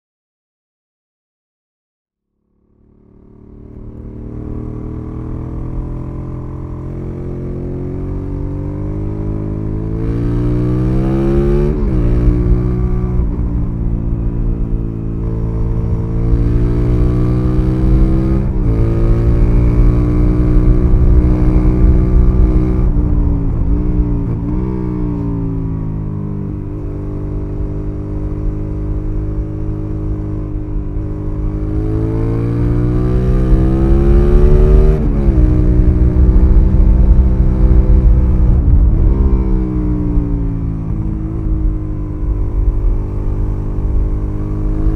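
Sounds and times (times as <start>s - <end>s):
motorcycle engine accelerating: 2.4s - 44.9s.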